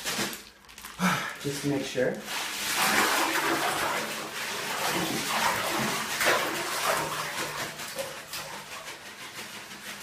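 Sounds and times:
ice cubes rattling: 0:00.0 - 0:01.0
plastic bag crinkling: 0:00.0 - 0:02.5.

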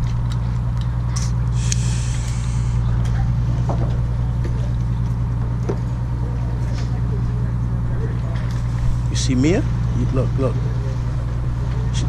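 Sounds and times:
boat engine drone: 0:00.0 - 0:12.0
brief hiss: 0:01.6 - 0:02.8.

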